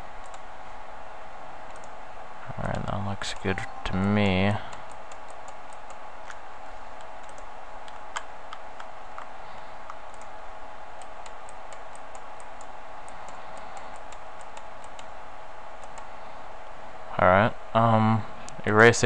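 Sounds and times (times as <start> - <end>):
steady electrical hum: 0.0 - 19.0
mouse and keyboard clicking: 15.8 - 16.1.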